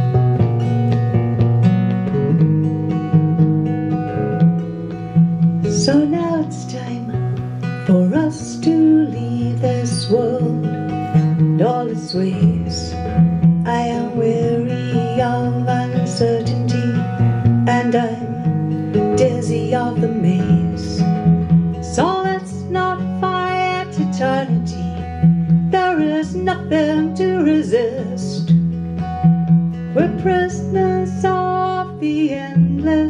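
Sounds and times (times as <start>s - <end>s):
bass guitar low notes: 0.0s - 11.8s
acoustic guitar strumming: 0.0s - 33.0s.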